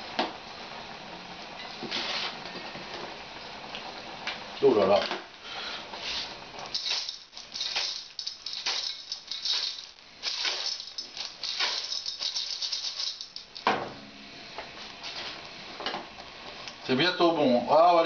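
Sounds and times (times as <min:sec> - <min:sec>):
shells rattling in metal pot: 0:06.6 - 0:13.7.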